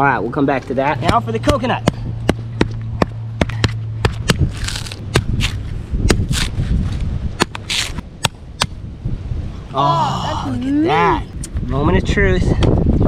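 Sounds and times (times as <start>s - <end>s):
hard tool knocking coconut: 1.0s - 6.5s
short scraping sounds: 4.4s - 8.0s.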